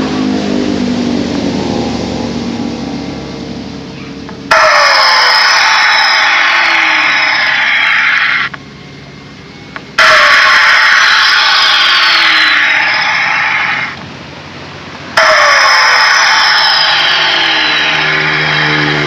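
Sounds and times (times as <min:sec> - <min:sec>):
hissing whoosh with falling whistle: 0:04.5 - 0:08.5, 0:10.0 - 0:14.0, 0:15.1 - 0:19.0.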